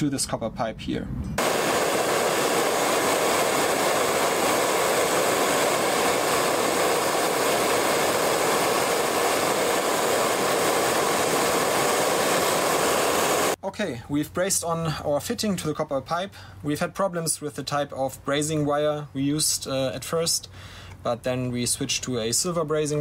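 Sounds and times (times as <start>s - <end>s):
gas torch rushing: 1.4s - 13.6s.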